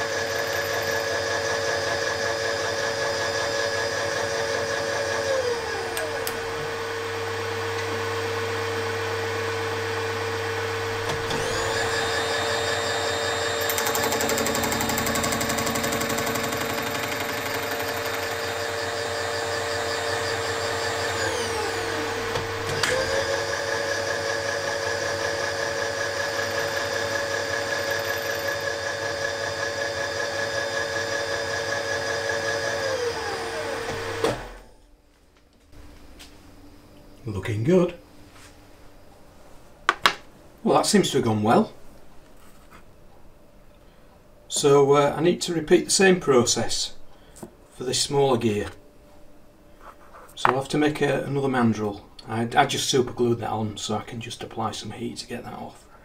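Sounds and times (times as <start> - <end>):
machine tool running: 0.0 - 6.9, 10.8 - 34.6.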